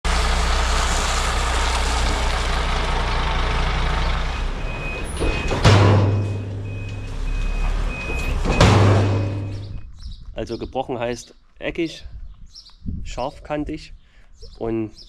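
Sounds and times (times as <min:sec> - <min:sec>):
diesel engine running: 0:00.0 - 0:09.8
reversing alarm beeps: 0:04.3 - 0:09.9.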